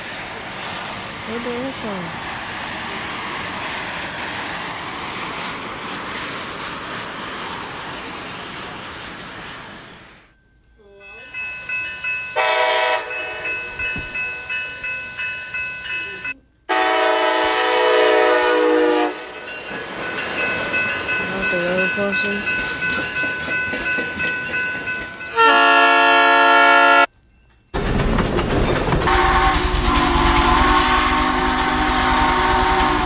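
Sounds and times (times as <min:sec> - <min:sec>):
jet airliner rush: 0:00.0 - 0:10.2
railroad crossing bell ringing: 0:10.2 - 0:16.4, 0:19.1 - 0:27.8
locomotive horn blast: 0:12.4 - 0:13.5, 0:16.7 - 0:19.4, 0:25.3 - 0:27.1, 0:29.1 - 0:33.0.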